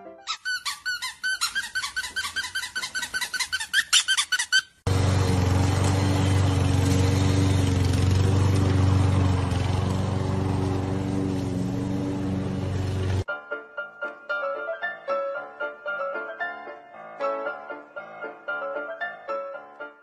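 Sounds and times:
high pitch-bending squeaks: 0.3 - 4.8
lawn mower engine running: 4.9 - 13.3.

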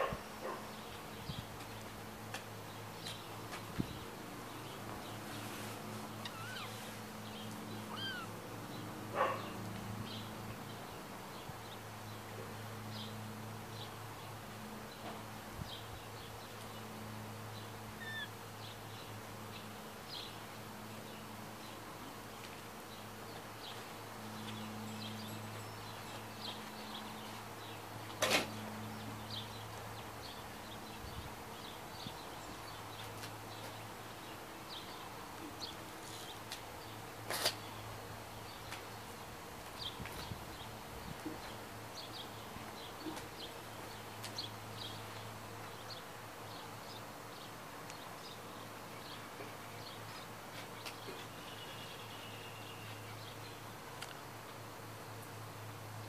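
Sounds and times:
faint bird chirps: 6.2 - 6.9, 7.8 - 8.3, 18.0 - 18.3.

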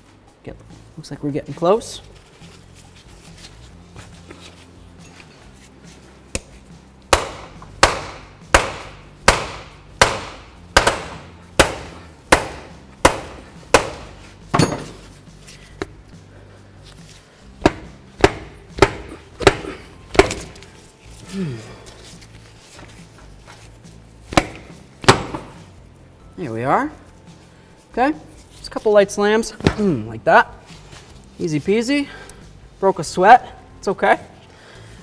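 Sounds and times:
rubber mallet striking metal nut: 7.1 - 15.1, 17.6 - 20.6.

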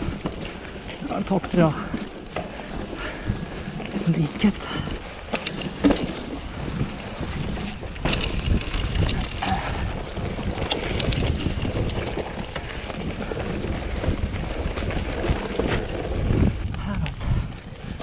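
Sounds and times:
bike clicks and rattles: 0.0 - 18.0
bike tyre rumble on dirt: 0.0 - 18.0
wind noise on microphone: 4.6 - 18.0.

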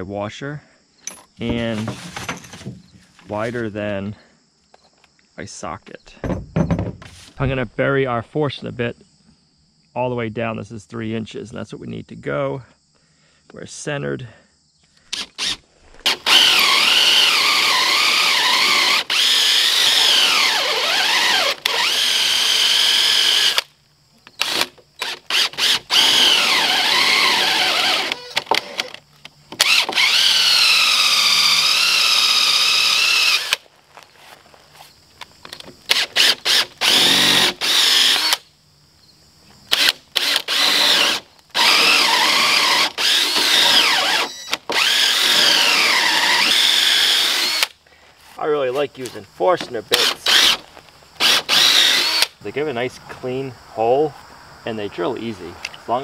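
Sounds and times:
drill boring into wood: 15.1 - 23.6, 24.4 - 29.0, 29.6 - 33.6, 35.9 - 38.4, 39.7 - 47.7, 49.9 - 50.6, 51.2 - 52.4.

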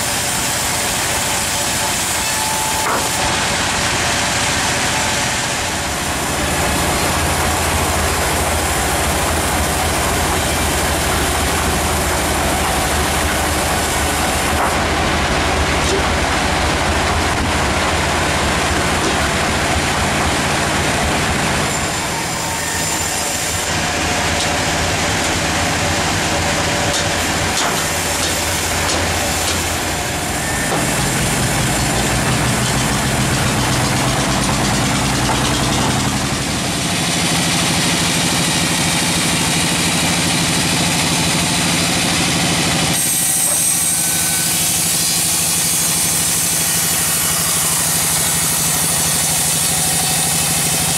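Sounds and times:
bandsaw mill running: 0.0 - 50.9.

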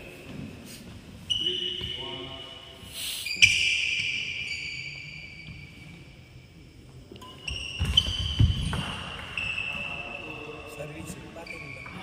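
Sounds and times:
shoes squeaking on floor: 0.0 - 6.2, 7.2 - 12.0.

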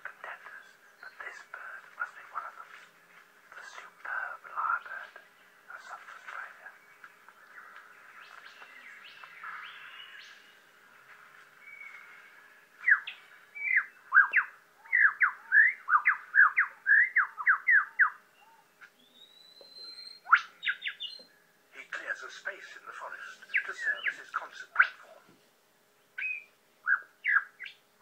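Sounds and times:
bird singing whistled notes: 11.6 - 21.3, 26.2 - 27.8.

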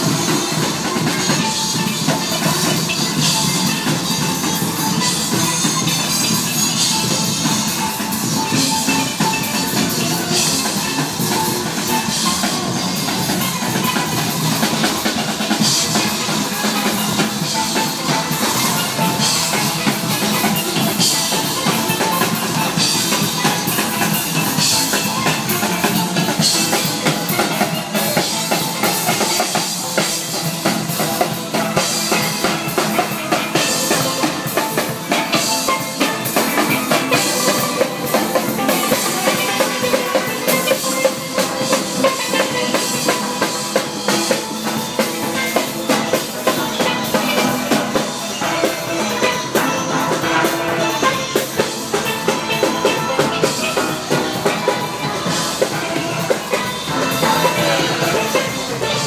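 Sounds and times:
drums with steady beat: 0.0 - 59.0
steel pans: 0.0 - 59.0.

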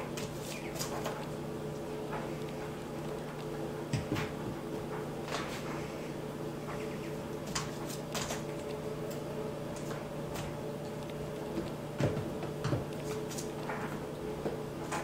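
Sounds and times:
steady low hum: 0.0 - 15.0
hooves tapping on wooden floor: 6.6 - 15.0.

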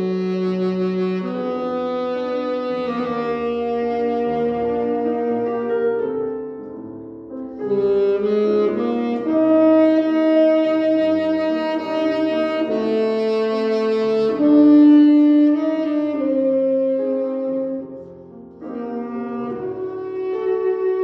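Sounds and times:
piano accompaniment: 0.0 - 21.0
saxophone slow melody: 0.0 - 21.0.

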